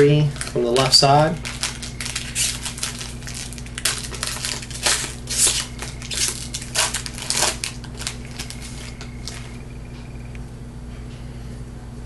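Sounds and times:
foil wrapper tearing and crinkling: 0.0 - 9.6.

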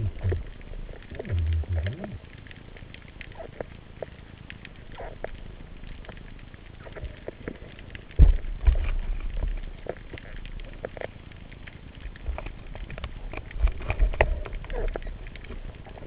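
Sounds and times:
spear clicks and low knocks: 0.0 - 3.2, 7.0 - 11.1, 12.0 - 15.6.

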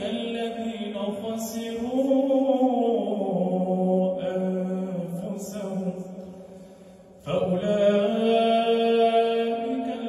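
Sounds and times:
man chanting recitation: 0.0 - 6.2, 7.2 - 10.0.

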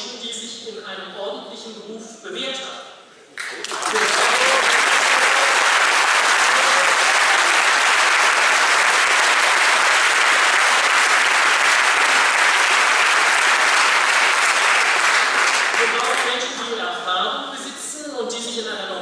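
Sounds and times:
audience applauding: 3.4 - 16.4.

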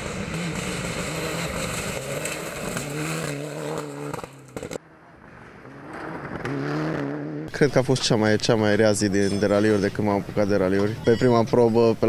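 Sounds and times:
car engine at high revs: 0.0 - 4.8, 5.6 - 7.6.

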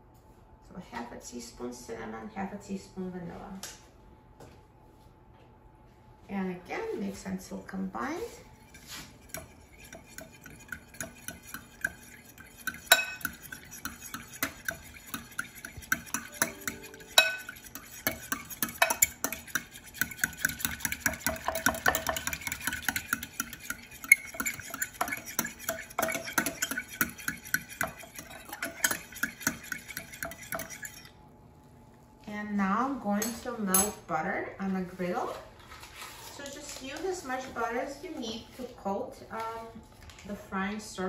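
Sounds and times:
fork stirring in glass bowl: 8.4 - 31.2.

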